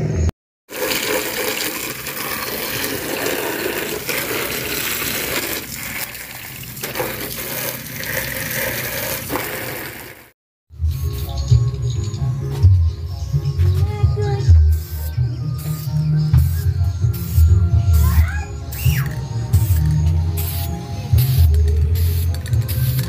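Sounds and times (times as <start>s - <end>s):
hose water spraying on plastic: 0.7s - 10.3s.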